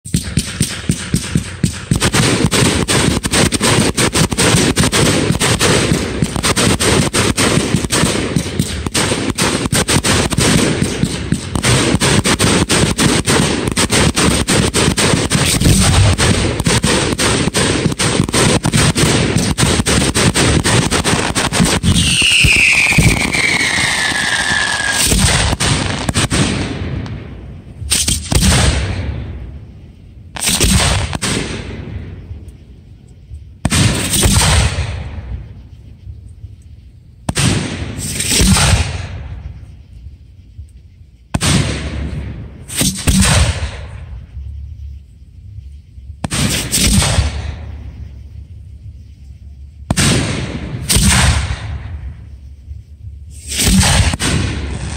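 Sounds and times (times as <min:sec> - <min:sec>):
fireworks bursts and crackling: 0:00.0 - 0:54.9
fireworks booms: 0:00.1 - 0:54.9
falling firework whistle: 0:21.2 - 0:26.7.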